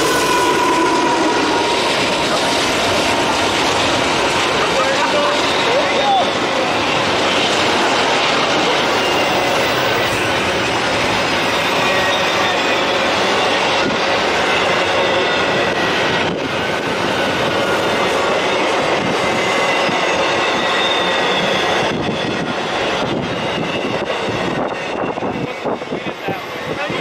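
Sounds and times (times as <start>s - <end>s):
freight train wheels rumbling on rails: 0.0s - 27.0s
faint high squealing: 11.1s - 13.6s.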